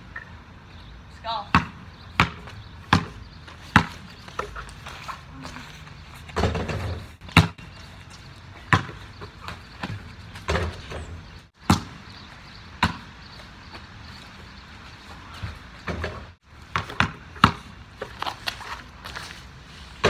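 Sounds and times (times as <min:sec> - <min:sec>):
basketball bouncing: 0:01.5 - 0:04.8, 0:06.3 - 0:07.9, 0:08.6 - 0:13.9, 0:15.4 - 0:17.8.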